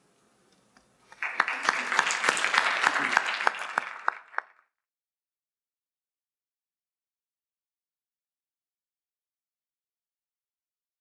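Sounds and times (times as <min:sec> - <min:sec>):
audience applauding: 0:01.1 - 0:04.7.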